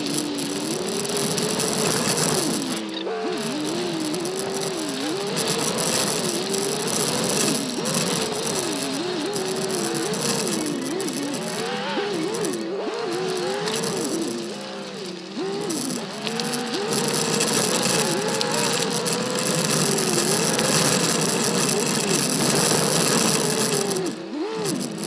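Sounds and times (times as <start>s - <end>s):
car engine revving: 0.0s - 25.0s
rattling: 0.0s - 25.0s.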